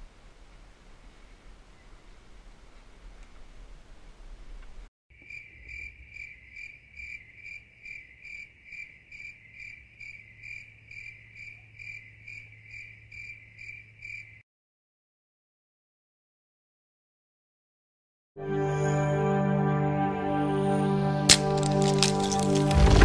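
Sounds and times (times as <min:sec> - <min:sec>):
crickets chirping: 0:05.1 - 0:14.4.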